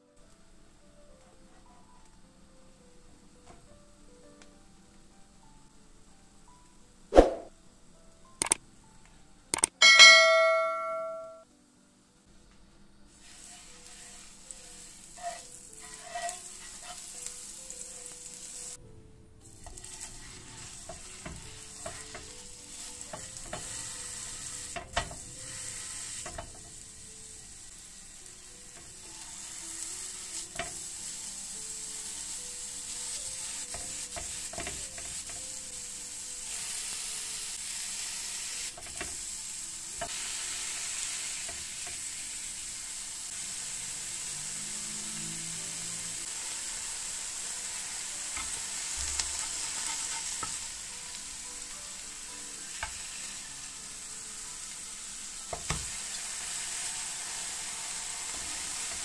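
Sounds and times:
meat sizzling on a griddle: 0:13.1 - 0:18.8, 0:19.4 - 0:59.0
utensils knocking and scraping pan: 0:15.2 - 0:17.1, 0:19.7 - 0:22.4, 0:23.1 - 0:23.8, 0:24.7 - 0:25.4, 0:26.2 - 0:26.7, 0:33.7 - 0:35.4, 0:48.4 - 0:50.6.

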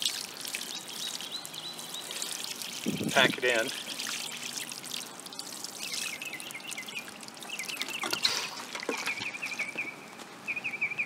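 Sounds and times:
water trickling onto sand: 0:00.0 - 0:08.0.

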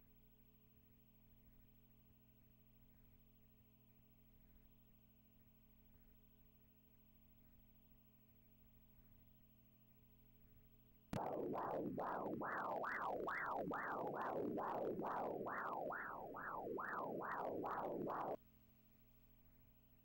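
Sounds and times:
rhythmic whooshing pulse: 0:11.2 - 0:18.4.

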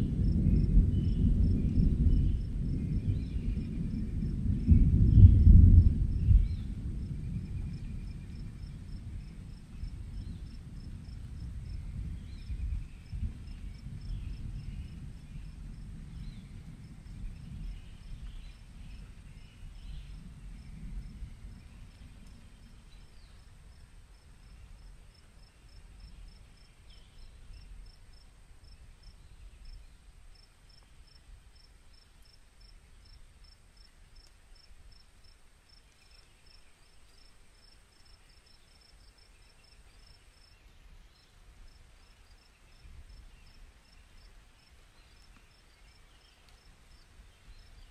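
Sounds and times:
low rumble: 0:00.0 - 0:23.2
cricket chirping: 0:17.0 - 0:47.9.

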